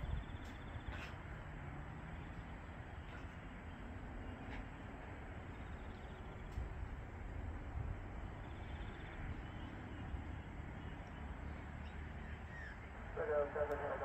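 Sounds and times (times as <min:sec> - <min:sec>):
wind buffeting microphone: 0:00.0 - 0:01.6, 0:04.1 - 0:11.6
faint bird chirps: 0:08.4 - 0:13.0.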